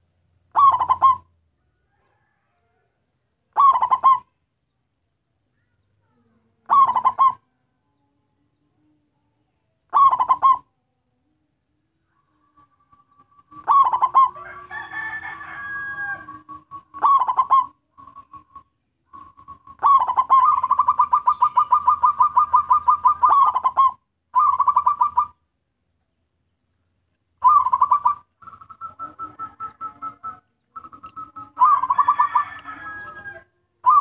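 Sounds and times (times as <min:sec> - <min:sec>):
dove cooing: 0:00.0 - 0:01.3, 0:03.5 - 0:04.3, 0:06.6 - 0:07.5, 0:09.9 - 0:10.7, 0:12.2 - 0:25.4, 0:27.4 - 0:34.0.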